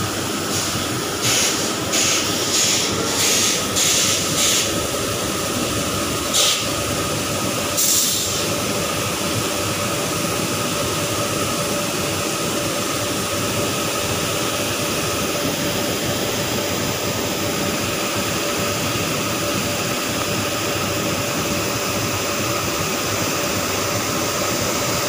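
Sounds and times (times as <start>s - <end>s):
train rushing noise: 0.0s - 8.7s.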